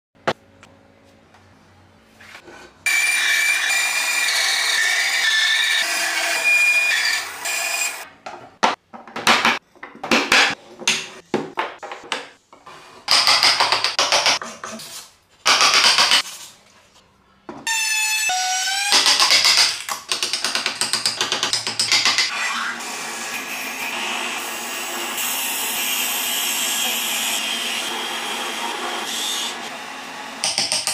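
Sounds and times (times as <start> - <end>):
power tool cutting wood: 2.9 - 8.0, 17.7 - 19.6, 22.2 - 30.4.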